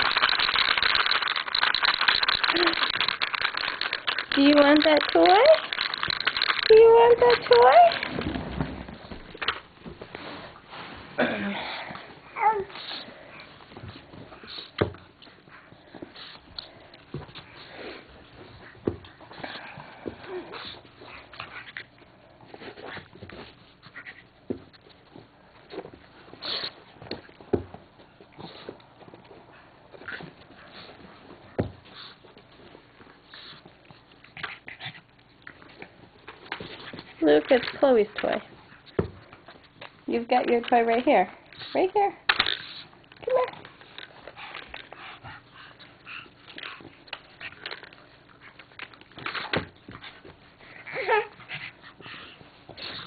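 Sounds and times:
dog panting and sniffing: 11.9 - 40.1, 40.7 - 53.0
dog whimper: 50.7 - 51.4.

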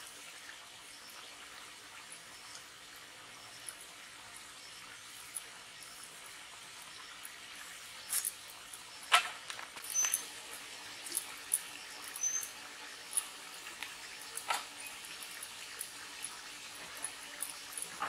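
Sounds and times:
short high squeaks: 9.8 - 10.5, 11.9 - 13.3.

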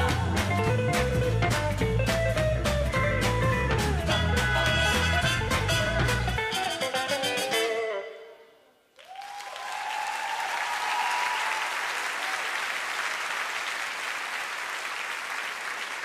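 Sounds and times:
audience applause: 9.0 - 16.0.

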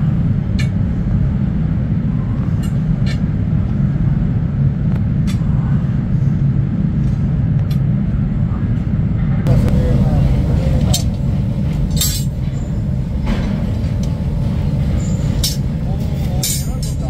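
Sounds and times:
steady low rumble: 0.0 - 17.0
metal tongs clinking: 11.9 - 12.6, 16.3 - 17.0.

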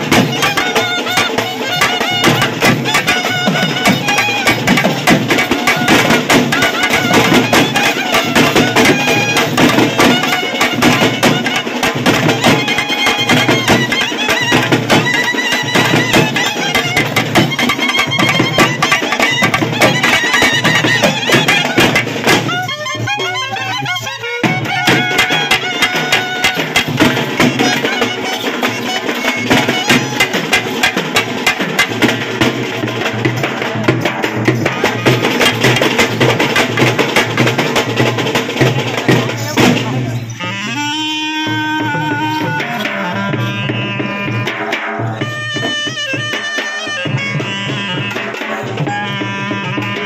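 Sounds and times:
frame drums beating: 0.0 - 50.0
clarinets playing in unison: 40.3 - 44.4.

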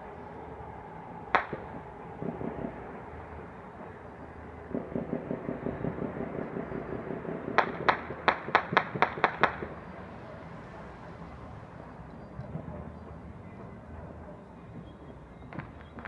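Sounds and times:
sharp loud cracks: 1.3 - 2.8, 4.7 - 9.8
distant string of dull pops: 1.3 - 3.9.

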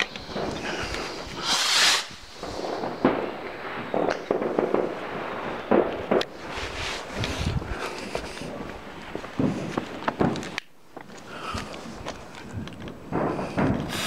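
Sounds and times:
firework hissing whoosh: 0.0 - 9.8, 13.2 - 14.0
firework bangs: 0.0 - 10.6, 11.5 - 14.0.

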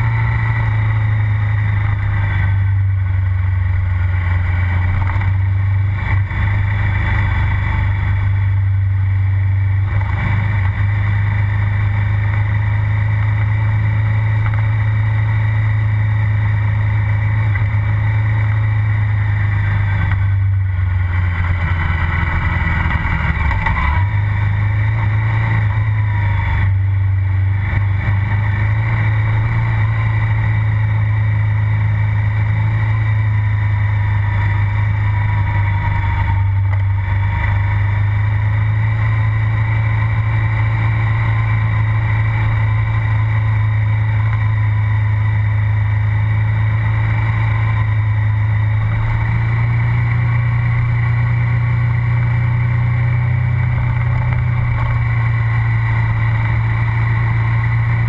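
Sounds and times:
motorcycle engine and exhaust: 0.0 - 58.0.

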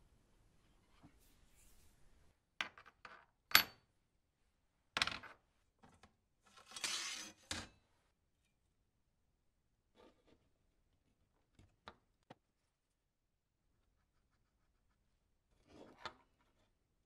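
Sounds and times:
metal rod scraping: 6.7 - 7.4.

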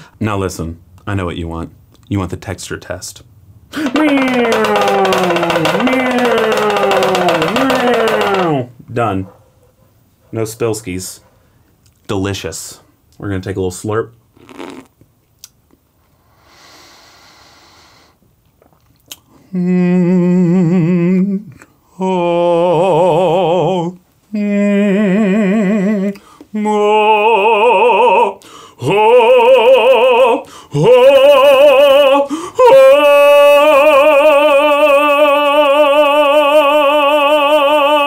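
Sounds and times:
singer breathing: 0.0 - 0.2, 3.7 - 4.0, 16.1 - 18.2, 26.2 - 26.5, 28.4 - 28.8, 30.4 - 30.8, 32.3 - 32.6
man singing operatically: 3.8 - 9.1, 19.6 - 38.0.

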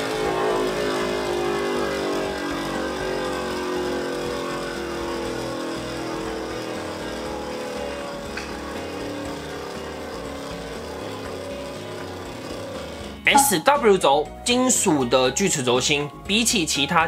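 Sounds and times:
spinning top whirring: 0.2 - 13.1.

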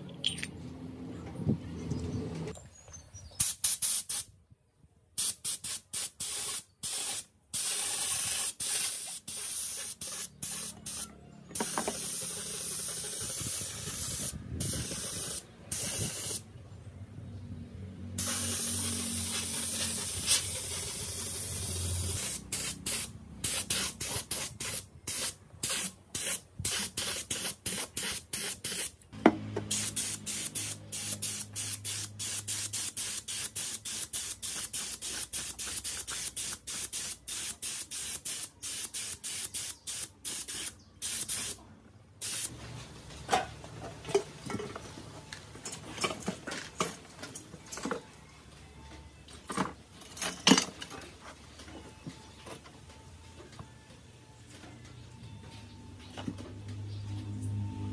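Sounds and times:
pressurised spray hissing: 5.2 - 11.0, 11.6 - 16.4, 18.2 - 28.9, 29.7 - 41.6, 42.2 - 42.5.

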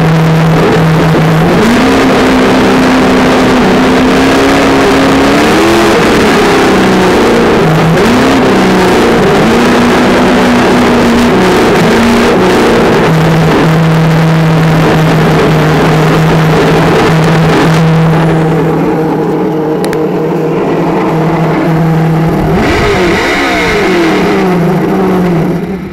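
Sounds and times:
rushing tyre and wind noise: 0.0 - 25.9.

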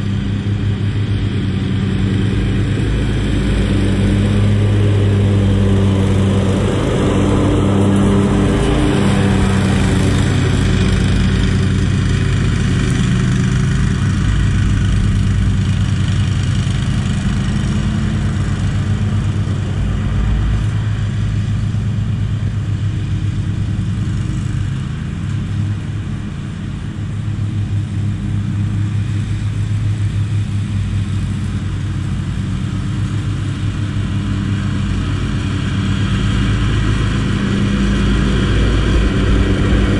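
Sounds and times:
riding mower engine running: 0.0 - 39.9.

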